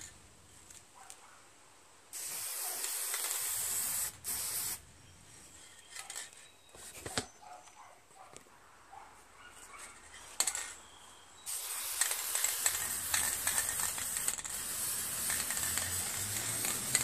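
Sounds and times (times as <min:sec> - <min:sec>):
spray paint can hissing: 0:02.1 - 0:04.8, 0:11.5 - 0:17.0.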